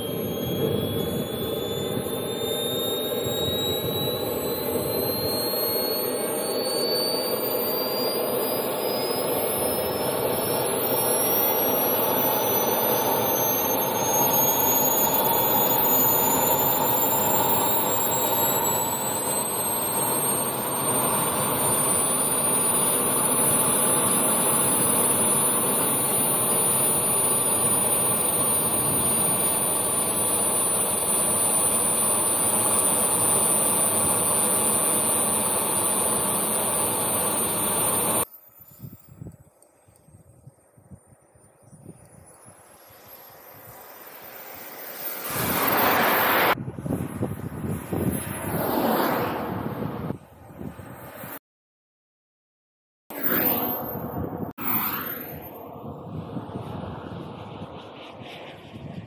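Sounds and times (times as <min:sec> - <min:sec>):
small turbine engine whine: 0:00.0 - 0:51.4, 0:53.1 - 0:59.0
rush of exhaust: 0:42.2 - 0:51.2.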